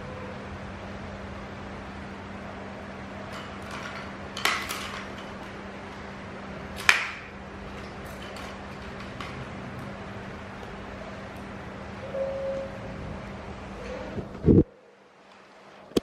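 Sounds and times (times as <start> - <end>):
plastic toy clattering on tile floor: 3.3 - 5.7, 6.7 - 9.9.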